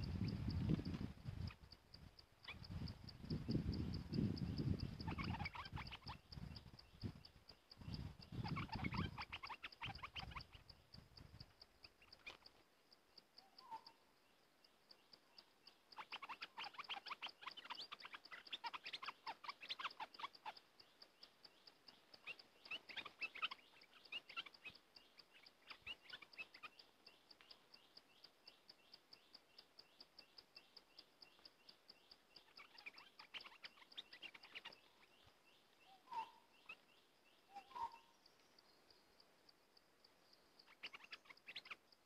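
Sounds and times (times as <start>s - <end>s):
bird chattering calls: 0.0s - 12.6s, 13.4s - 14.1s, 14.9s - 39.0s, 40.3s - 42.0s
faint insect ticking: 0.0s - 42.0s
short low bird calls: 13.4s - 14.1s, 32.0s - 38.4s.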